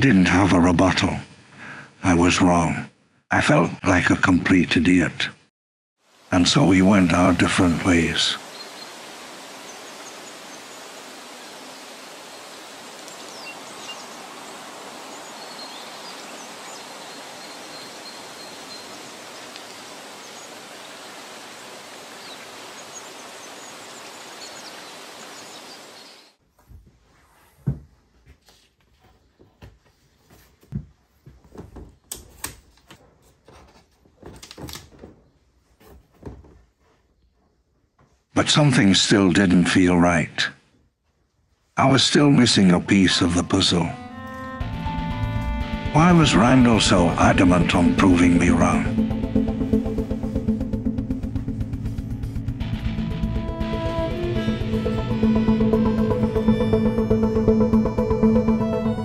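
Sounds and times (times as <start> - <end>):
outdoor background noise: 6.0 - 42.8
faint bird chirps: 8.4 - 21.3.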